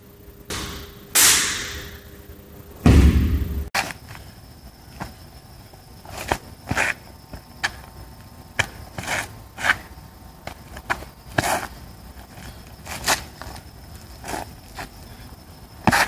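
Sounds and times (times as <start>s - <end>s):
shoe slaps and scuffs on asphalt: 6.0s - 11.8s, 12.8s - 13.6s, 15.8s - 16.0s.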